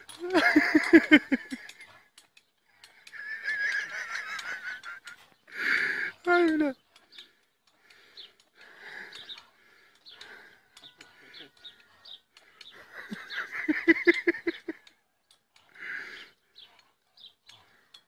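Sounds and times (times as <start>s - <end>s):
person laughing: 0.1s - 1.8s, 3.2s - 5.2s, 12.8s - 14.8s.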